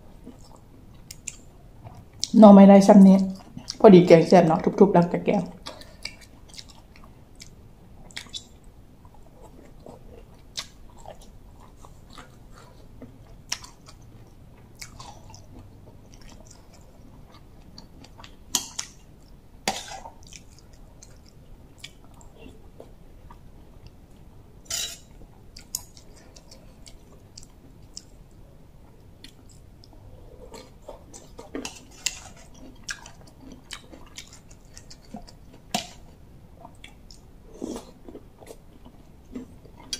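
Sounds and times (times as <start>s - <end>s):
chewing bamboo shoots: 25.5s - 39.9s.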